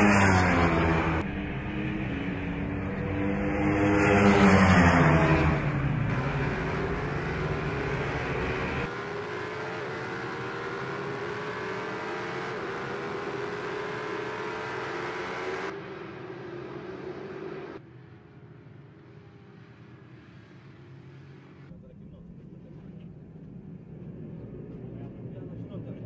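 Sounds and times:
superbikes passing at high revs: 0.0 - 16.3
distant superbike engine: 0.0 - 26.0.

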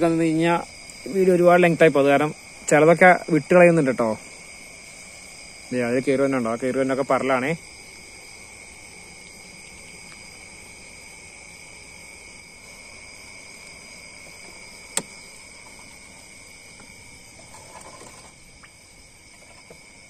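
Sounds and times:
crickets and insects chirring: 0.0 - 20.0
faint rustle: 14.2 - 18.6
sharp click: 14.9 - 15.2.

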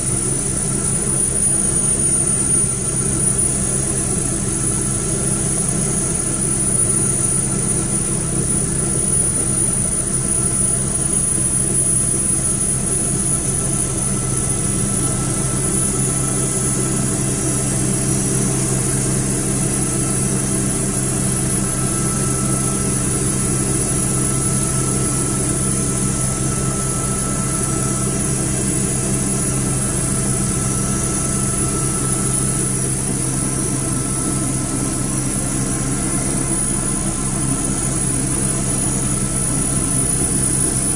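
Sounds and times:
helicopter engine and rotors: 0.0 - 40.9
high turbine whine: 0.0 - 40.9.

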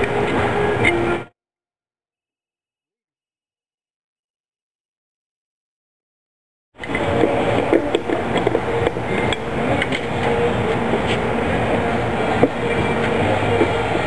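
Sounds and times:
workshop din: 0.0 - 1.3, 6.8 - 14.0.

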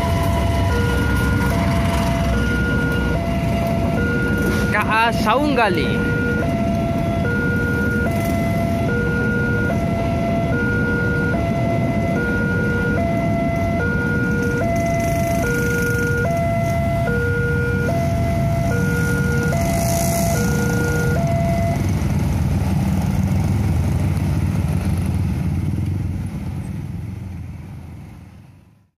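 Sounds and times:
level crossing two-tone alarm: 0.0 - 21.9
traffic engines rumbling: 0.0 - 28.9.

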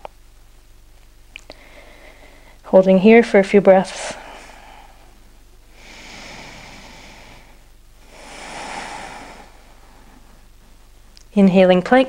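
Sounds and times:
person breathing through nose: 1.5 - 2.6, 5.7 - 10.3.

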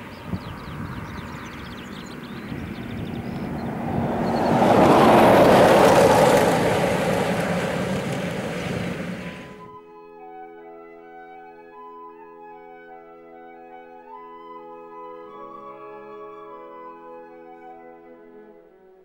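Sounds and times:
vehicle passing by: 0.0 - 9.7.

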